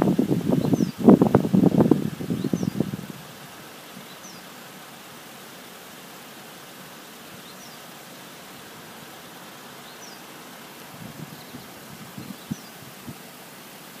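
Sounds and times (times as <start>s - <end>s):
outdoor background hiss: 0.0s - 14.0s
faint high bird chirps: 0.6s - 1.0s, 2.3s - 2.8s, 7.4s - 7.9s, 9.8s - 10.3s, 11.3s - 12.8s.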